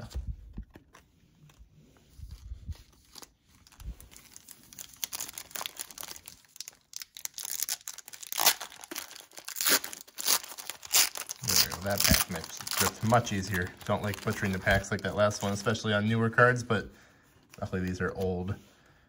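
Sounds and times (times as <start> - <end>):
wrapper tearing and crinkling: 2.8 - 15.7.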